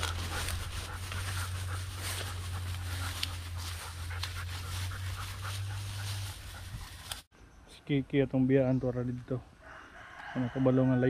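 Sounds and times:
dog panting and sniffing: 0.0 - 7.3
leaves rustling: 0.0 - 7.3.

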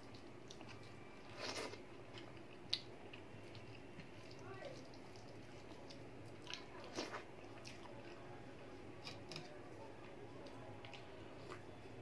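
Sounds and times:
person chewing: 0.0 - 8.2, 9.0 - 9.5.

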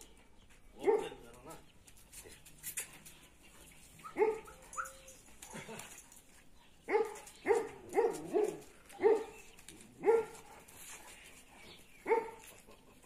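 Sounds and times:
dog barking: 0.8 - 1.2, 4.0 - 4.6, 6.9 - 9.4, 10.0 - 10.5, 12.0 - 12.5.

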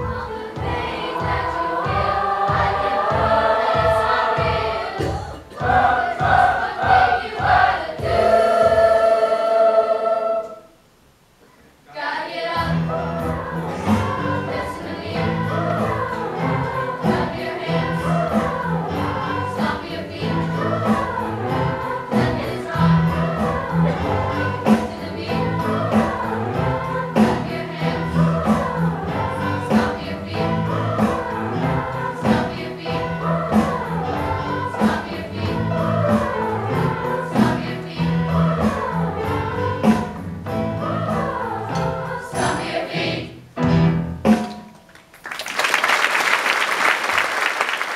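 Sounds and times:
drum kit beat: 0.0 - 9.4, 12.6 - 42.9, 43.6 - 44.9
choir singing: 0.0 - 10.7, 11.9 - 43.4
piano: 0.0 - 10.8, 12.4 - 47.9
bass: 12.6 - 44.4
audience applause: 44.9 - 47.9.

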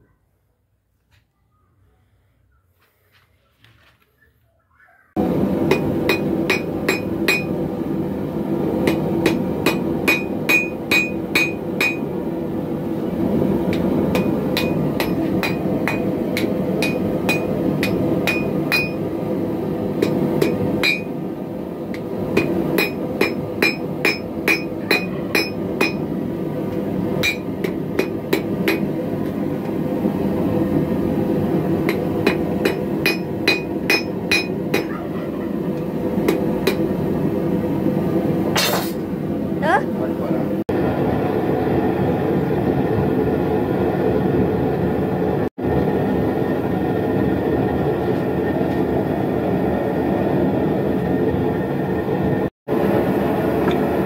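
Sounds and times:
hammer striking an anvil: 5.7 - 7.5, 8.8 - 12.1, 13.7 - 19.0, 20.0 - 21.2, 21.9 - 26.1, 27.2 - 28.9, 31.8 - 35.0, 36.2 - 36.9.

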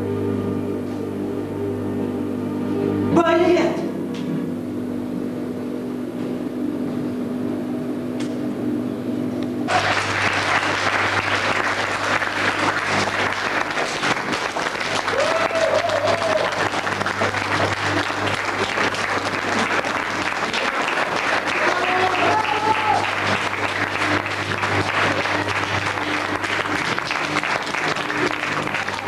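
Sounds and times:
steady low hum: 0.0 - 21.6, 22.2 - 29.0
audience clapping: 9.7 - 29.0
whoop from audience: 15.0 - 16.8, 21.6 - 23.2.

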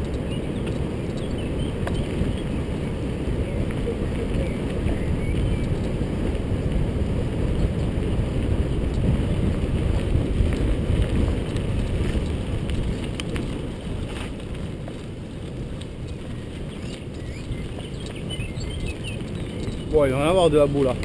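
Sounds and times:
tyres rumbling over gravel: 0.0 - 21.0
wind buffeting microphone: 0.0 - 21.0.

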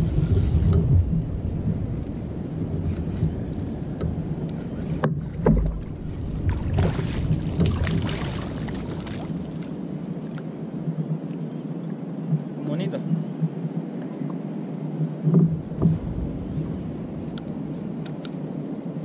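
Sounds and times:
low rumble of water and wind: 0.0 - 19.0
rod knocking against hull: 5.0 - 8.0
fish splashing at the surface: 6.5 - 9.7.

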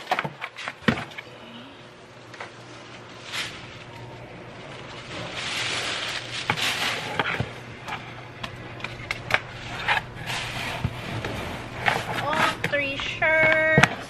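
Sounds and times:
paper rustling in cardboard box: 2.6 - 7.3.

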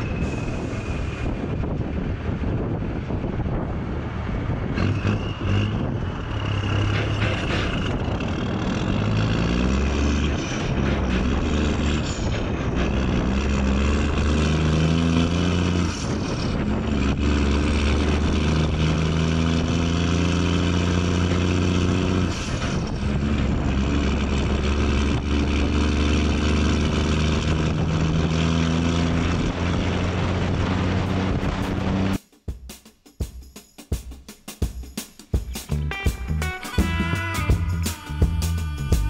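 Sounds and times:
diesel truck engine pulling: 0.0 - 32.2
wind and road noise: 0.0 - 32.2.

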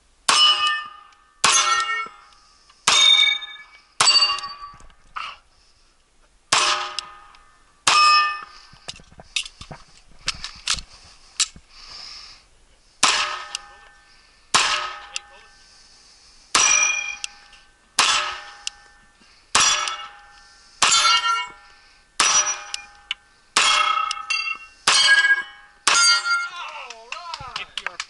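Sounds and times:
steel target ringing clang: 0.3 - 2.3, 2.9 - 4.8, 6.5 - 8.6, 13.0 - 13.9, 14.5 - 15.5, 16.5 - 17.4, 18.0 - 26.5
pistol shots: 13.0 - 13.7, 14.5 - 15.3, 18.0 - 18.7.

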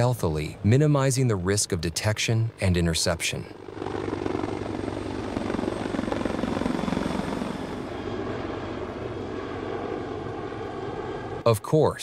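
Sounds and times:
helicopter rotors chopping: 0.0 - 12.0.

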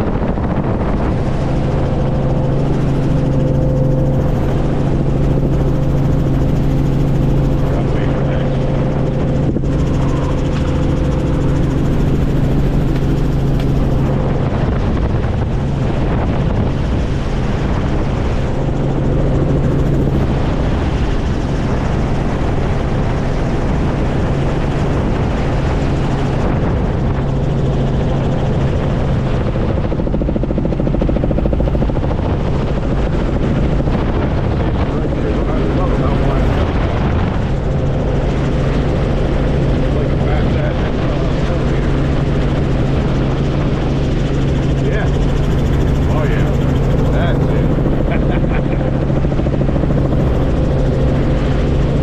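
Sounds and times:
rushing air: 0.0 - 22.7
helicopter rotor and engine drone: 0.0 - 52.0.

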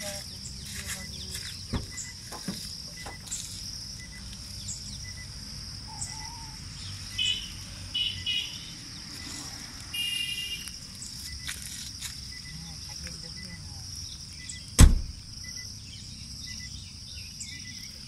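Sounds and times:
high-pitched insect drone: 0.0 - 18.0
short bird calls: 3.0 - 11.1.

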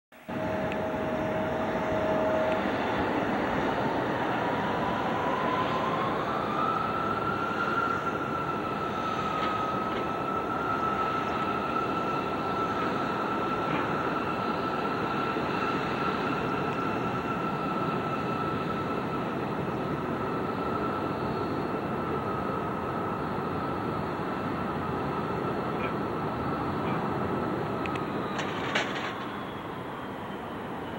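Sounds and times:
jet engines with fan whine: 0.1 - 30.9.

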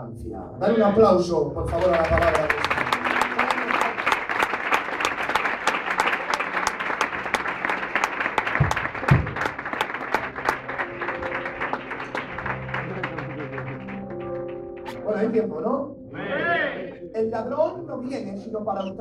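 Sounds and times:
congregation applauding: 1.6 - 15.0.

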